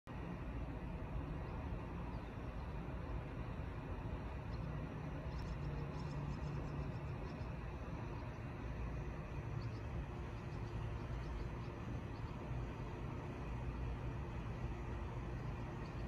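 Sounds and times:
low outdoor rumble: 0.1s - 16.0s
faint high bird chirps: 4.3s - 13.1s, 15.3s - 16.0s.

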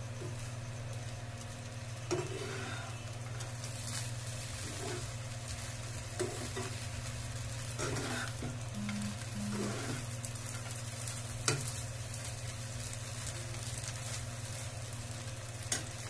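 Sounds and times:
faint sizzle of frying: 0.0s - 16.0s
steady low hum: 0.0s - 16.0s
spatula scraping frying pan: 2.0s - 5.2s, 6.2s - 6.8s, 7.6s - 10.8s.

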